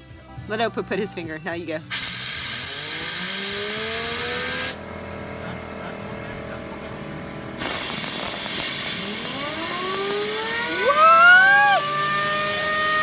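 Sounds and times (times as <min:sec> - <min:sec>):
compressed air hissing: 0:01.9 - 0:04.8, 0:07.6 - 0:13.0
fidget spinner whine: 0:07.6 - 0:13.0.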